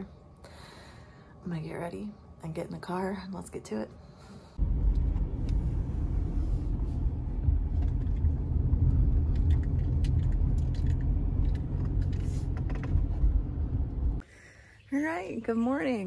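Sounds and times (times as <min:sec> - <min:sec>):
car interior driving rumble: 0:04.6 - 0:14.2.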